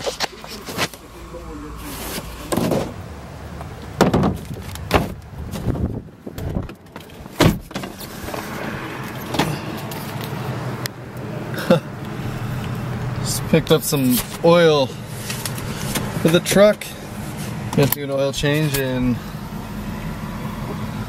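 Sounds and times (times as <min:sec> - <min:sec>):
low hum inside cab: 0:00.0 - 0:21.0
truck door shutting: 0:02.1 - 0:03.0, 0:03.9 - 0:10.2.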